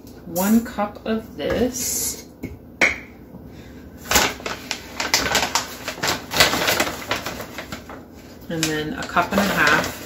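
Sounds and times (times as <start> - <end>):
cup scooping flour bag: 4.0 - 10.0.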